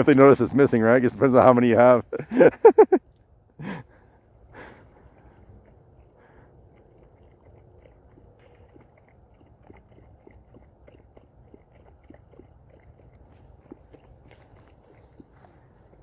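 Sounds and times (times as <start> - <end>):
dog lapping water: 5.0 - 16.0.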